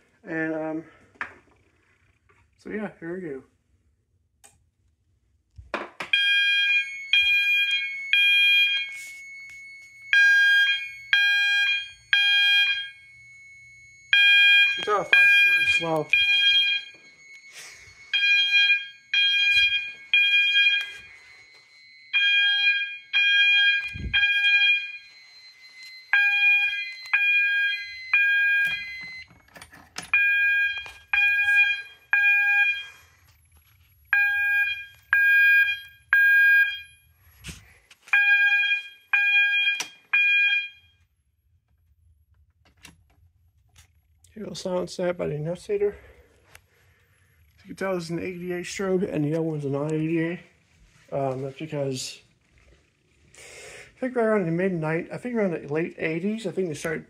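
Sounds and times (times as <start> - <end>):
fire alarm horn beeps: 6.1 - 29.3, 30.1 - 33.1, 34.1 - 37.0, 38.1 - 41.0.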